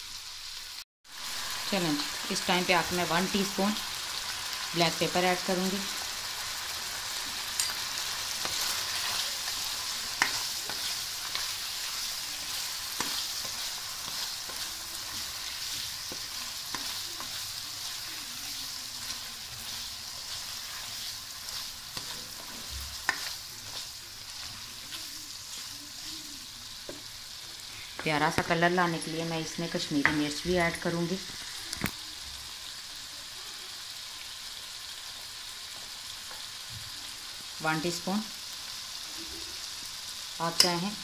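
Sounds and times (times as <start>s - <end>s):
chicken sizzling in hot oil: 0.0s - 41.0s
spoon scraping and knocking pan: 7.3s - 26.1s.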